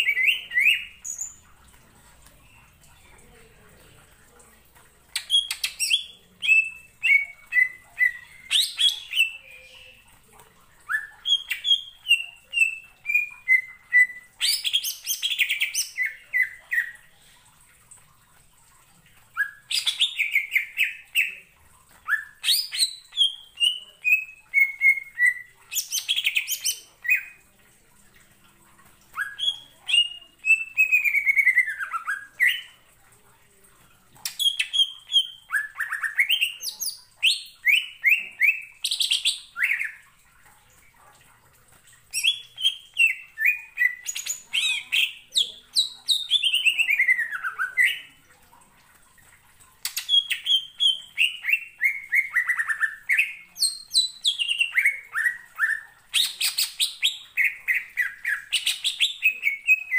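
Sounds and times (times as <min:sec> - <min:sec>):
bird singing whistled phrases: 0:29.2 - 0:32.7.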